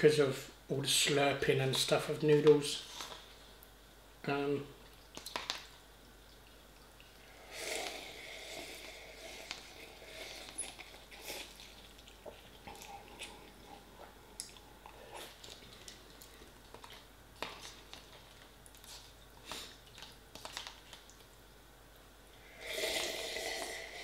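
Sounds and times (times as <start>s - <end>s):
person slurping noodles: 7.2s - 11.8s, 22.4s - 24.0s
chewing: 8.7s - 21.3s.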